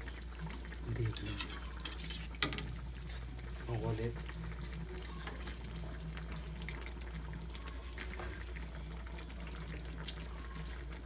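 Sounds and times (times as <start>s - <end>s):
sauce bubbling and popping: 4.2s - 11.0s.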